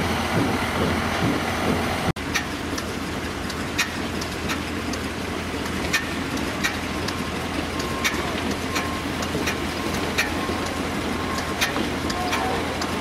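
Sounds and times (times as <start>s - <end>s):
diesel engine running slowly: 0.0s - 13.0s
sharp engine tick: 2.3s - 7.2s, 7.8s - 13.0s.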